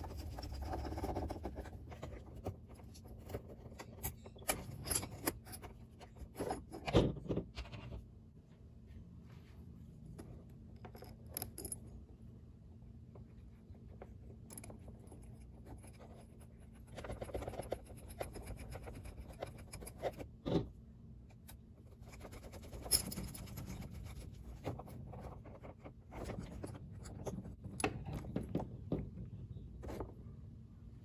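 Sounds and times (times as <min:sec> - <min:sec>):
tool scraping screw heads: 0:03.7 - 0:05.7.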